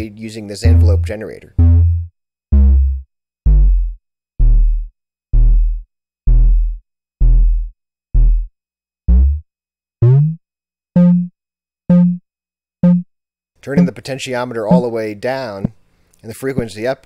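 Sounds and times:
synthesized drum hits: 0.7 - 3.8.

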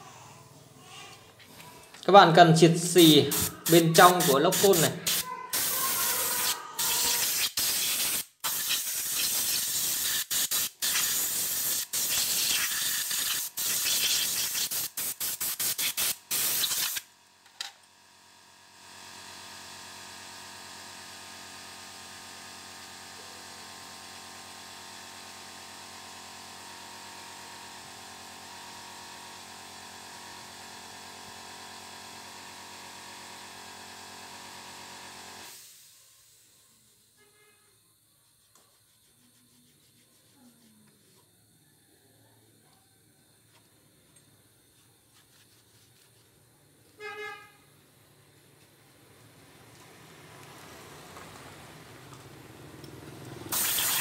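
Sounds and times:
compressed-air blow gun hissing: 2.9 - 17.0, 53.5 - 54.0.

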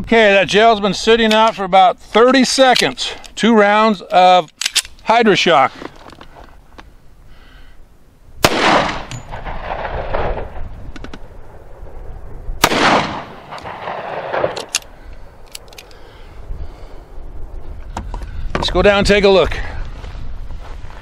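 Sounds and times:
pistol shots: 8.4 - 10.6, 12.6 - 14.9
gunshot echo off hills: 8.4 - 10.7, 12.6 - 14.7.

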